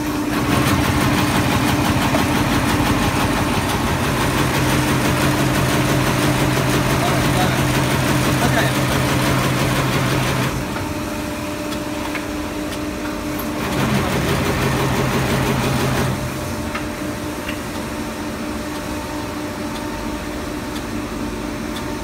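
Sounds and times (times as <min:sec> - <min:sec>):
machine humming: 0:00.0 - 0:22.0
light mechanical ticks: 0:18.7 - 0:19.0, 0:20.7 - 0:20.9, 0:21.7 - 0:22.0.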